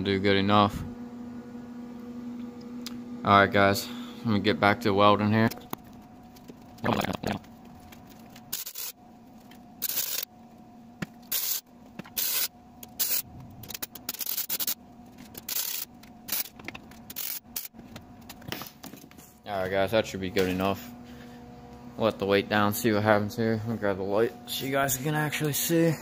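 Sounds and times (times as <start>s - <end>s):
steady low hum: 0.0s - 26.0s
arc welding crackling bursts: 8.5s - 9.0s, 9.8s - 10.3s, 11.3s - 11.6s, 12.2s - 13.3s.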